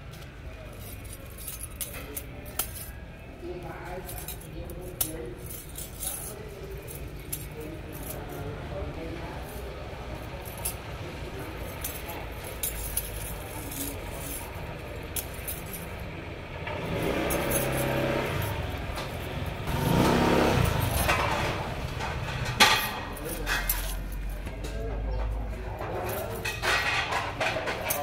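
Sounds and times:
low background hum: 0.0 - 19.7.

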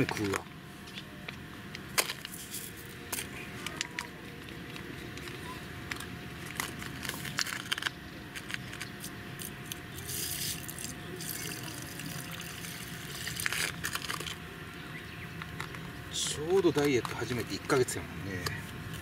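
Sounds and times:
plastic bag crinkling: 5.9 - 14.4.

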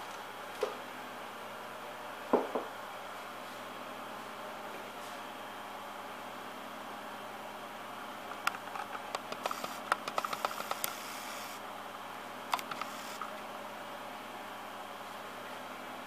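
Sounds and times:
camera handling clicks and scratches: 8.4 - 11.2.

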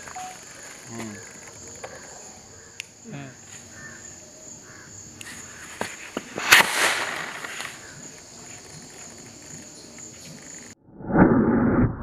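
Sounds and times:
insects buzzing: 0.0 - 10.8
firework rocket hissing burst: 6.3 - 8.0.

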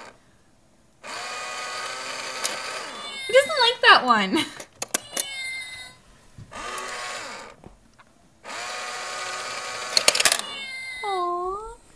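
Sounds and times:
small motor whirring: 1.0 - 3.7, 4.9 - 7.6, 8.4 - 11.1
plastic clicks: 4.6 - 5.4, 9.8 - 10.6.

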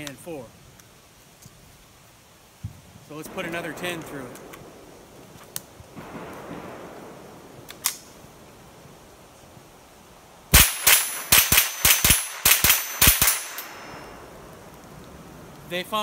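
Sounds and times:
rifle shots: 3.3 - 8.5, 10.5 - 14.5.

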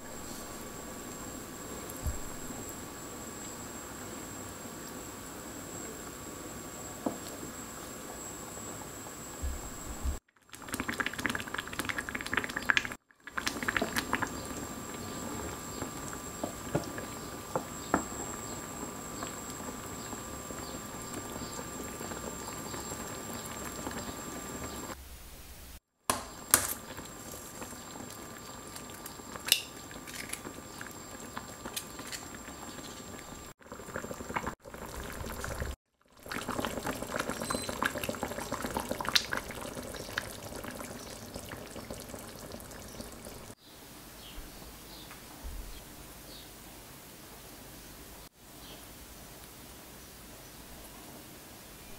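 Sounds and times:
soup bubbling and popping: 10.2 - 25.0, 26.1 - 43.6.

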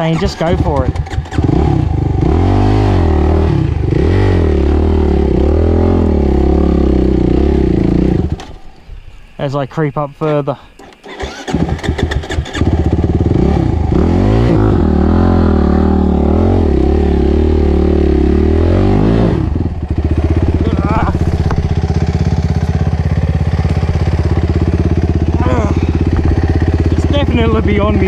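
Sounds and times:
dirt bike engine revving: 0.0 - 8.6, 11.0 - 28.0.

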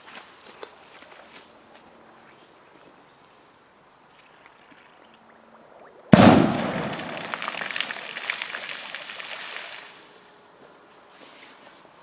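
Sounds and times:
firecracker bang: 6.1 - 8.2
water spattering down: 6.2 - 9.9.

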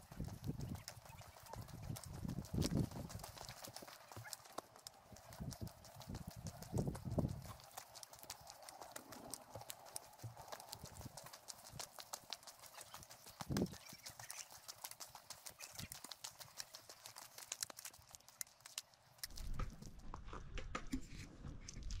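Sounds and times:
footsteps on gravel: 0.0 - 4.8.

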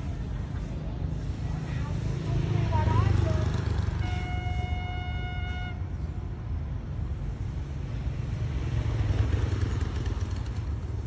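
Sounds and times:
diesel locomotive engine rumble: 0.0 - 11.0
train horn: 4.0 - 5.8.

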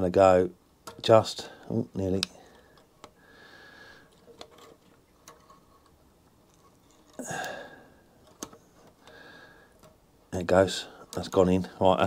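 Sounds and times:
faint metal clicks of pliers: 0.8 - 3.2
person breathing: 2.3 - 4.4, 7.0 - 8.2, 8.9 - 10.0.

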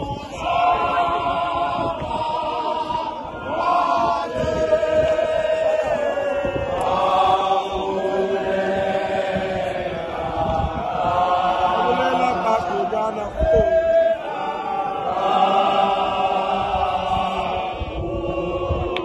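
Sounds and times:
men singing a hymn: 0.0 - 19.0.

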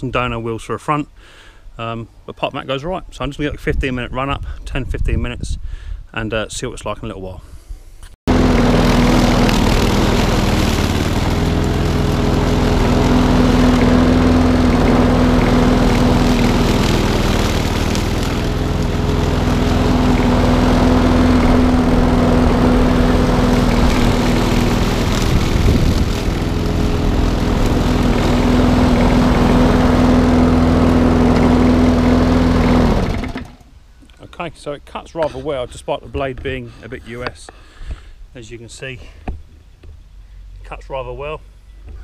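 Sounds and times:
lawnmower engine cutting grass: 8.3 - 33.7.

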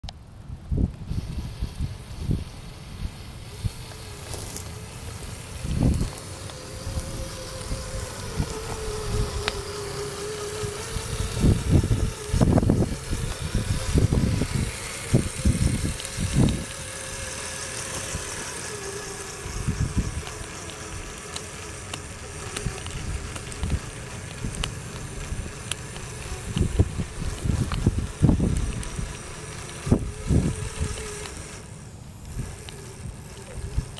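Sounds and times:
electric motor whine: 0.8 - 33.9
low rumbles and thumps: 3.0 - 16.8, 21.8 - 31.6.

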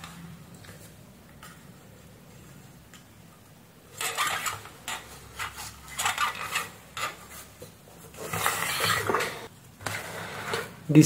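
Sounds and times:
objects rubbing and scraping: 3.9 - 11.0.

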